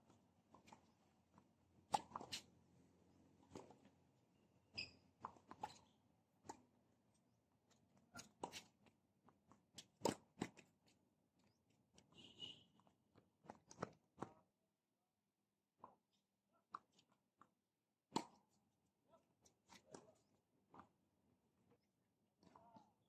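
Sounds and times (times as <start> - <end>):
tennis ball off racket strings: 1.9 - 2.5
shoe squeaks: 4.8 - 5.0.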